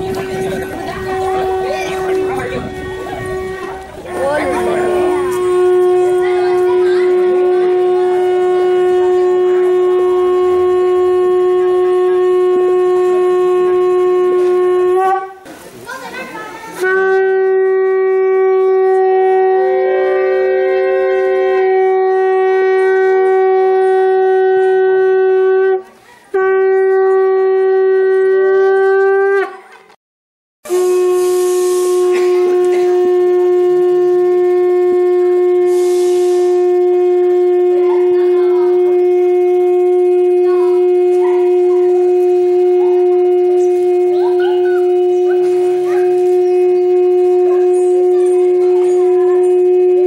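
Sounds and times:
conch shells blown: 0:00.0 - 0:15.5, 0:16.8 - 0:29.6, 0:30.7 - 0:50.0.

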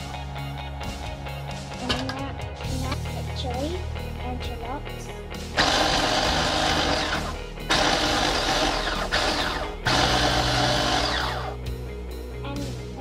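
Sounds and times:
food processor chopping: 0:05.6 - 0:11.6.

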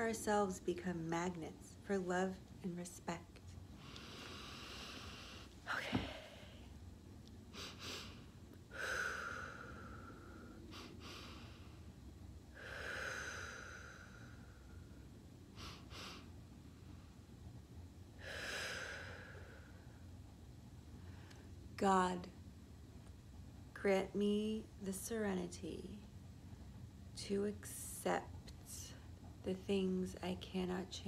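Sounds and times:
woman breathing deeply: 0:03.7 - 0:06.8, 0:07.5 - 0:17.3, 0:18.1 - 0:20.2.

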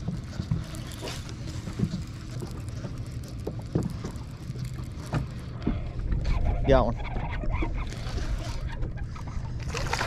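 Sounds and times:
waves lapping against boat hull: 0:00.0 - 0:10.0.

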